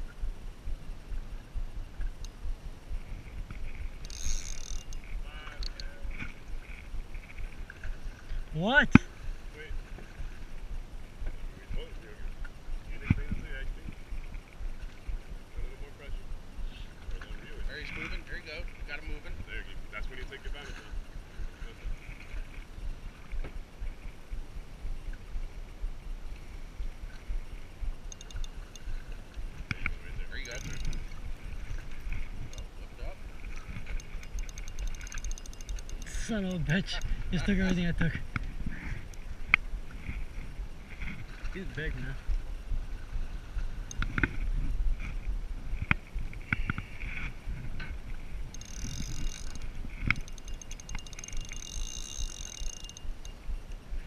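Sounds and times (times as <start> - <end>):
water around boat: 0.0 - 54.0
wind buffeting microphone: 0.0 - 54.0
squeaky wavering sound: 28.1 - 29.0, 30.4 - 31.3, 33.9 - 37.1, 48.6 - 53.9.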